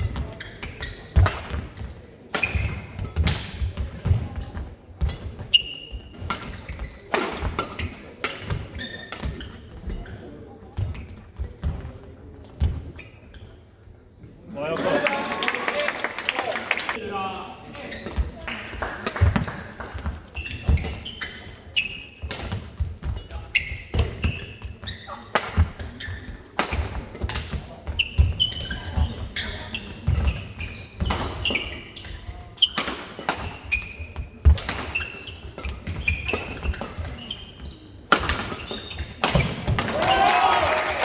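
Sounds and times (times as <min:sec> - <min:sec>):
shoes squeaking on court: 0:00.0 - 0:11.9, 0:19.4 - 0:39.7.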